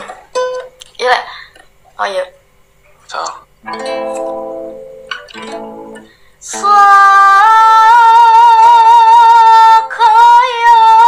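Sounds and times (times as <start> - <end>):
plucked guitar chord: 3.6 - 7.4.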